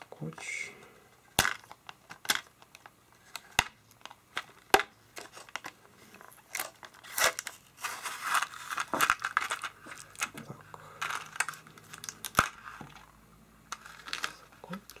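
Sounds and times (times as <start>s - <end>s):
plastic tray crackling: 1.4s - 13.1s.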